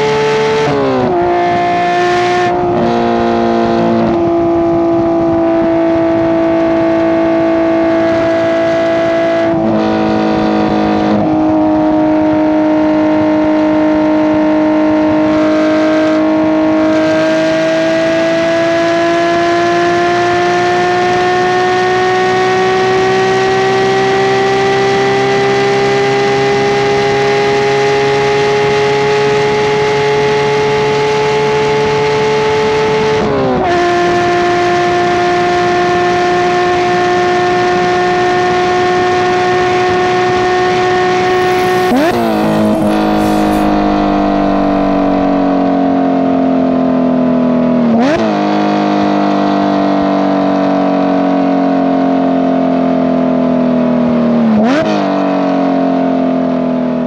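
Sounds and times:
sports car engine revving: 0:39.5 - 0:46.0.

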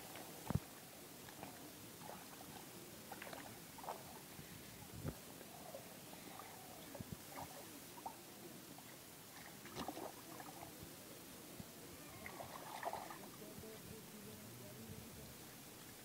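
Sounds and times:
water splashes: 0:00.0 - 0:04.4, 0:06.2 - 0:10.8, 0:12.1 - 0:13.5
hands sloshing in muddy water: 0:09.4 - 0:10.6, 0:12.2 - 0:13.2.

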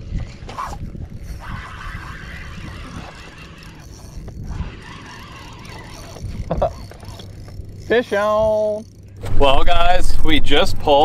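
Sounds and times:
wind noise on microphone: 0:00.0 - 0:06.9.

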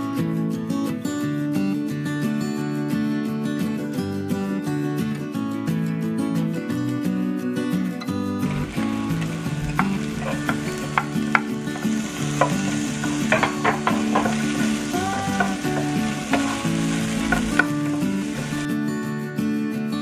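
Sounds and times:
onion and garlic sizzling in oil: 0:08.4 - 0:18.7
wooden spoon scraping pan: 0:08.5 - 0:18.7.

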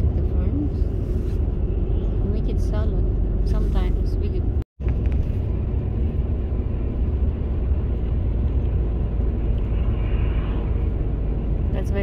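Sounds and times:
vehicle cabin rumble: 0:00.0 - 0:12.0.

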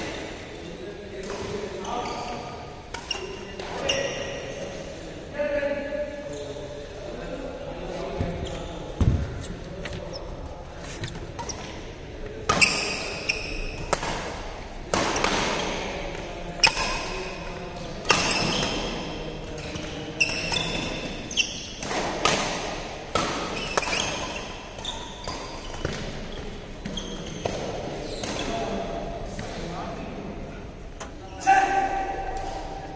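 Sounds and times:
racket hitting shuttlecock: 0:02.9 - 0:03.8, 0:12.4 - 0:15.9, 0:18.0 - 0:26.2
shoes squeaking on court: 0:07.9 - 0:11.9, 0:12.5 - 0:14.0, 0:19.6 - 0:21.8, 0:23.5 - 0:28.6.

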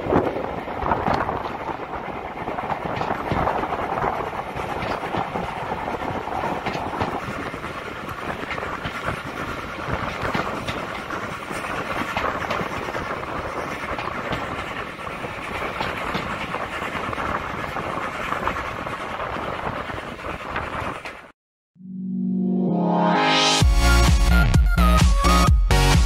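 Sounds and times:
train wheels rumbling on rail: 0:00.0 - 0:21.3.

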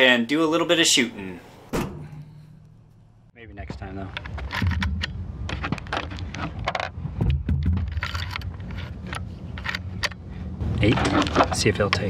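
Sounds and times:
low rumble: 0:04.2 - 0:11.2
cartridges loading into rifle: 0:07.8 - 0:10.2.

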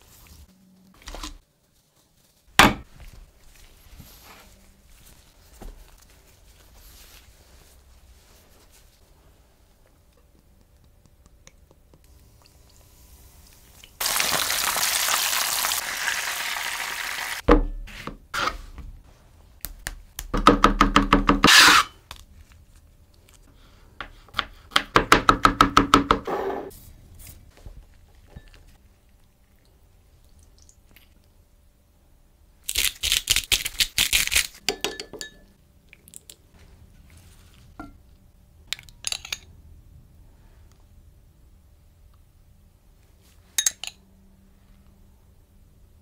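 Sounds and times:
hot oil sizzling: 0:12.5 - 0:17.4.

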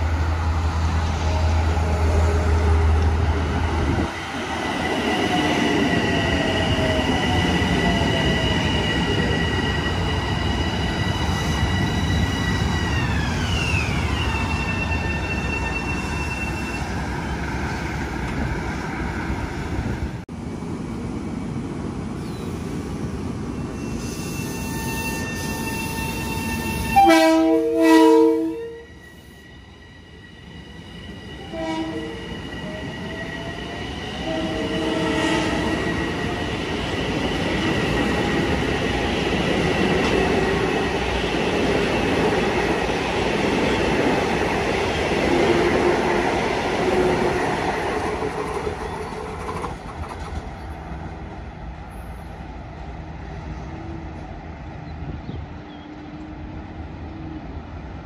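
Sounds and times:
rising train whine: 0:00.0 - 0:58.0
train horn toot: 0:23.8 - 0:29.1, 0:31.4 - 0:32.3, 0:34.2 - 0:35.6
train horn blast: 0:24.0 - 0:29.0, 0:31.5 - 0:32.2, 0:34.2 - 0:35.6.

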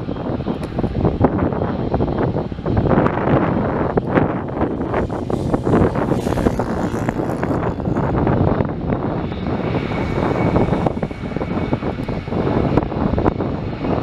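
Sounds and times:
jet engines rumbling: 0:00.0 - 0:14.0
faint high whine: 0:04.0 - 0:14.0.

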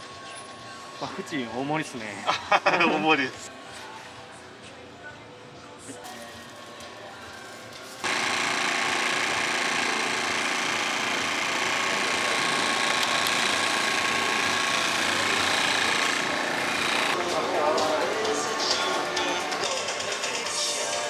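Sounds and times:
portable generator engine running: 0:08.0 - 0:19.8.

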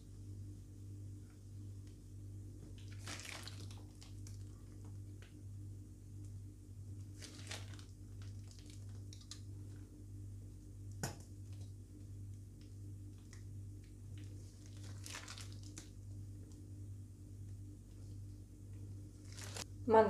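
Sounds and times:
steady low hum: 0:00.0 - 0:20.0
plastic bag crinkling: 0:02.9 - 0:04.6, 0:07.1 - 0:09.4, 0:14.2 - 0:16.1, 0:19.2 - 0:19.7.

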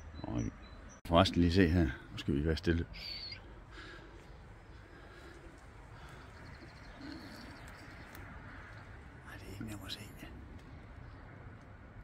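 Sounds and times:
low bird call: 0:02.9 - 0:09.0.

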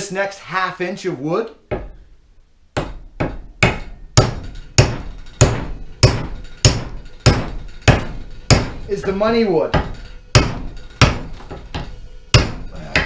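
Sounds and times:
hammer striking axe head: 0:02.8 - 0:13.0.

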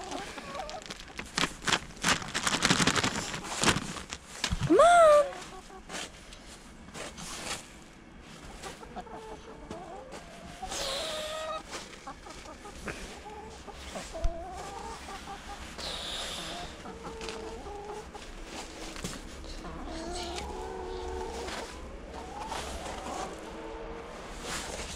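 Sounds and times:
hens clucking: 0:00.0 - 0:01.4, 0:04.6 - 0:06.4, 0:08.2 - 0:24.9.

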